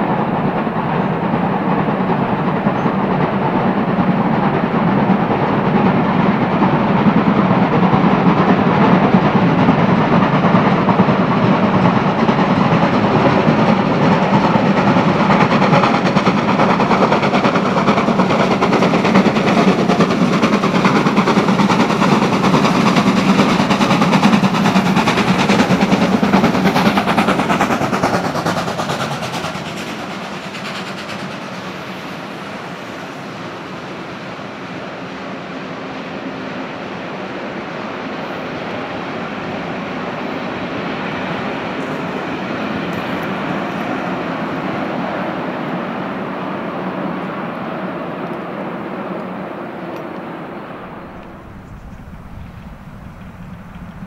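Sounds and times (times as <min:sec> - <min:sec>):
steam locomotive exhaust beats: 0:00.0 - 0:54.0
coaches rolling by: 0:48.8 - 0:54.0.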